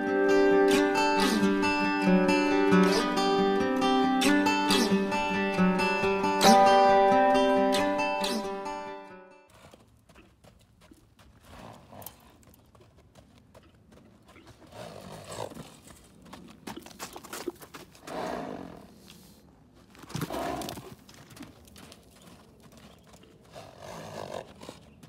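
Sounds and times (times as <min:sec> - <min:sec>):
hooves on sand: 0:09.5 - 0:25.0.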